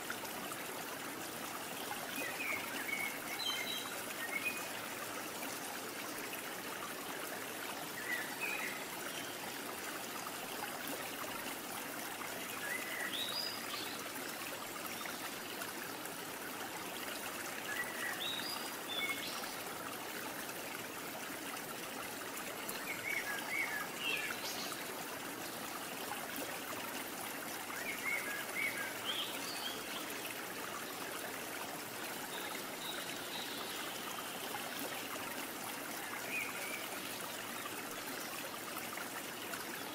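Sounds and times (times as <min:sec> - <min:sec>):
trickling water: 0:00.0 - 0:39.9.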